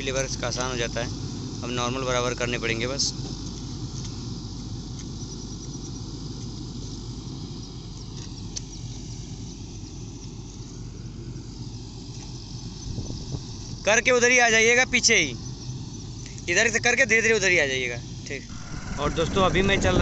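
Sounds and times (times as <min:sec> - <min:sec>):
diesel engine running: 0:06.0 - 0:20.0.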